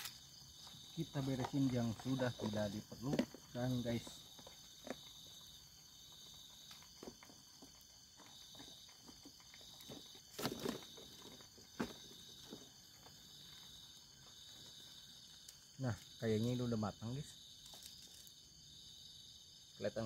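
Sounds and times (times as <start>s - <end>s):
camping gear clicks and rustles: 0.0s - 13.7s, 17.6s - 18.4s
crickets chirring: 0.0s - 20.0s.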